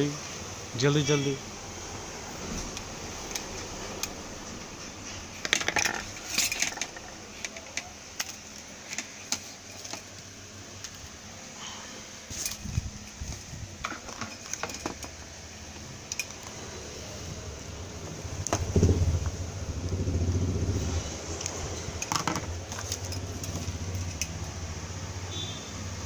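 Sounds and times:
wires clicking and tapping: 0:02.4 - 0:11.1, 0:12.3 - 0:16.7, 0:17.5 - 0:24.7
low rumble: 0:17.8 - 0:21.4.

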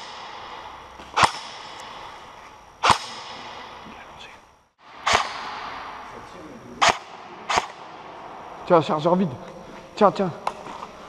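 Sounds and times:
airsoft gun shots: 0:00.0 - 0:02.2, 0:02.8 - 0:03.8, 0:04.9 - 0:06.0, 0:06.8 - 0:08.2
gunshot echo: 0:00.0 - 0:04.0, 0:04.8 - 0:08.6.

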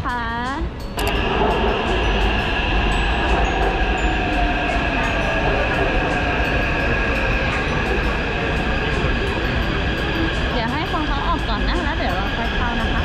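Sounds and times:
metro train rumble and whine: 0:00.0 - 0:13.0.

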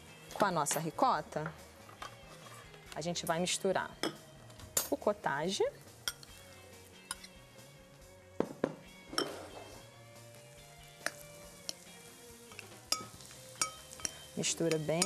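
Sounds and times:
faint background music: 0:00.0 - 0:15.0
spoon clinking against glass bowl: 0:06.0 - 0:06.3, 0:12.5 - 0:15.0.

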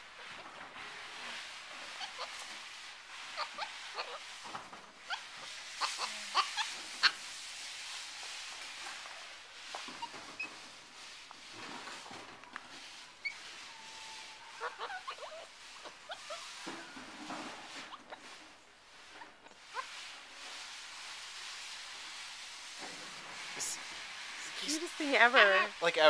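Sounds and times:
monkeys chirping and squeaking: 0:01.8 - 0:02.5, 0:03.4 - 0:04.3, 0:05.0 - 0:07.2, 0:09.7 - 0:10.7, 0:13.2 - 0:13.8, 0:14.5 - 0:16.6.

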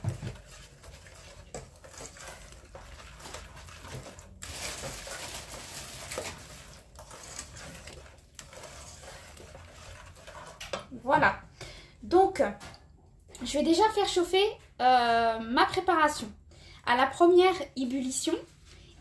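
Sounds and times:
utensil scraping and clinking pan: 0:00.0 - 0:10.9.

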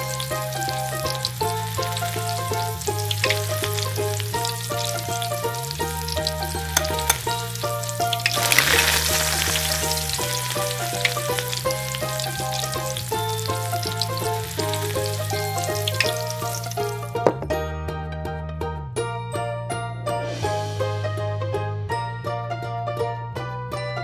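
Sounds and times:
food sizzling and crackling: 0:00.0 - 0:17.2
background music with bass: 0:00.0 - 0:24.0
fork clinking on pot: 0:06.8 - 0:07.3.

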